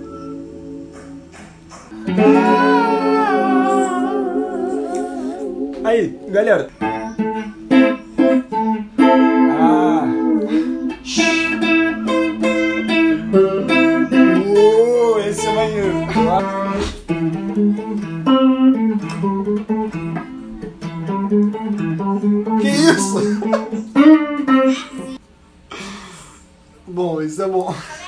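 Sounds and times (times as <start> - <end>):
electric guitar: 0.0 - 25.2
person singing: 2.0 - 6.3, 8.5 - 12.3, 13.7 - 17.0, 22.6 - 23.9.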